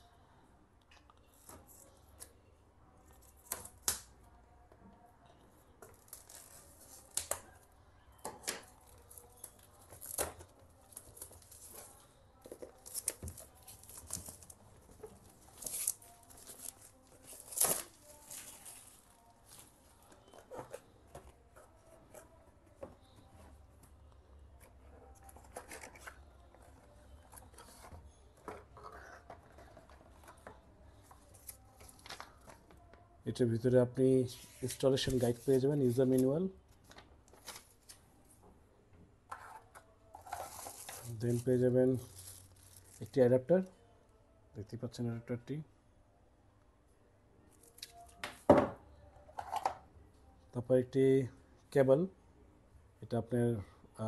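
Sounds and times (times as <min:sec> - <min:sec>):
plastic wrap crackling and tearing: 0:12.6 - 0:20.6, 0:40.2 - 0:43.2.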